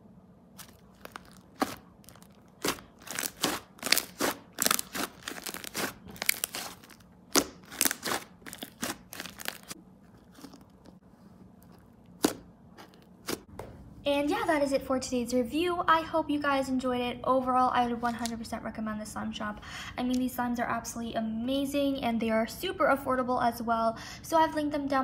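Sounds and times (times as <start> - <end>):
slime squished by hand: 0.6 - 11.0, 12.1 - 13.5.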